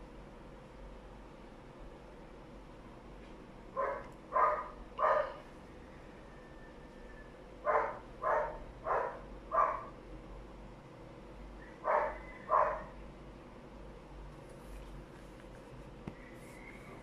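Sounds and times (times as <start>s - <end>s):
dog barking: 3.8s - 5.4s, 7.6s - 10.0s, 11.7s - 13.0s.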